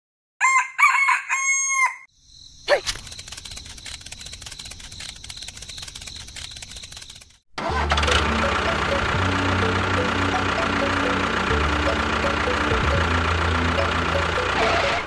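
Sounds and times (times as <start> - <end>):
rooster crowing: 0.4 - 2.1
small motor ticking and whining: 2.9 - 7.4.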